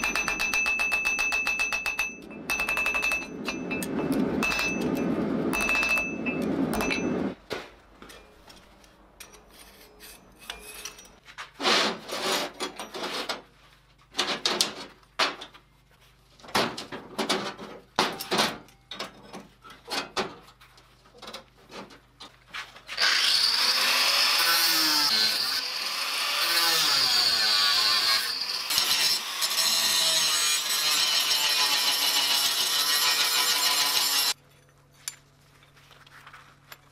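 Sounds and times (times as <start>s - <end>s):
hammer ringing on anvil: 0.0s - 7.3s
angle grinder grinding steel: 23.0s - 34.4s.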